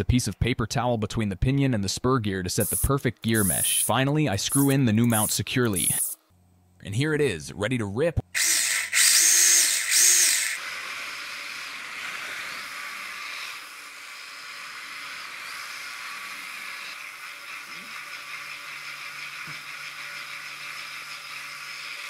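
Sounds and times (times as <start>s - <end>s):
toy car electric motor whirring: 2.6s - 3.9s, 4.5s - 6.2s, 8.3s - 22.0s.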